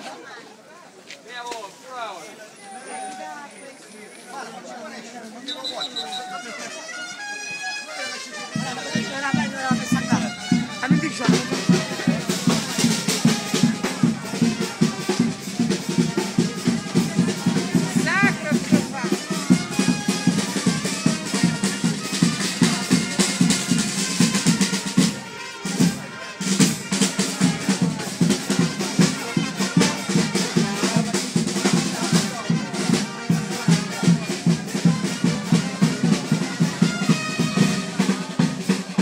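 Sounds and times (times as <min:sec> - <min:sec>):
music with quick drum beat: 0:08.3 - 0:39.0.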